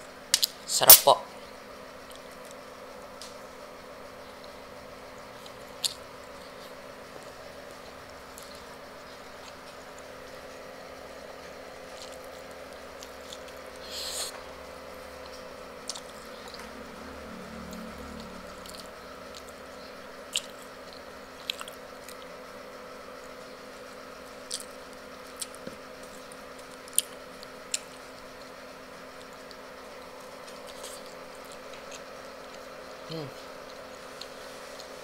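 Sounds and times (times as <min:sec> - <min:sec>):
faint steady hum: 0:00.0 - 0:35.0
person chewing food: 0:05.3 - 0:10.2, 0:11.6 - 0:14.4, 0:15.1 - 0:16.7, 0:17.6 - 0:22.3, 0:24.4 - 0:28.0, 0:30.2 - 0:32.7
wet mouth clicks and smacks: 0:20.4 - 0:20.6.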